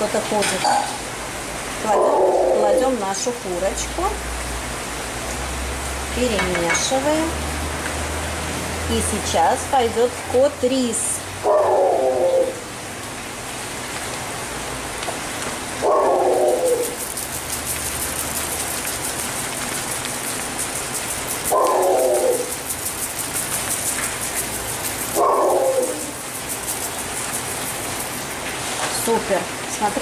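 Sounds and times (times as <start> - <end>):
dog barking: 11.4 - 12.0, 15.8 - 16.9, 21.5 - 22.5, 25.2 - 26.1
rice grains poured into broth: 16.4 - 28.9.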